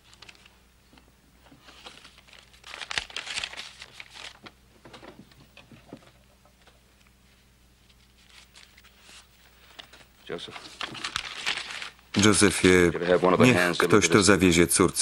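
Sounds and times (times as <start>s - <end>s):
paper banknotes rustling: 1.6s - 4.5s, 7.9s - 12.4s.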